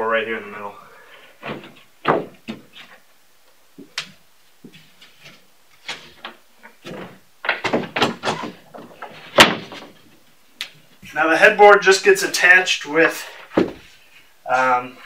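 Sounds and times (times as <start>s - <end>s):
wooden boards knocking and scraping: 1.4s - 3.0s, 4.7s - 10.2s.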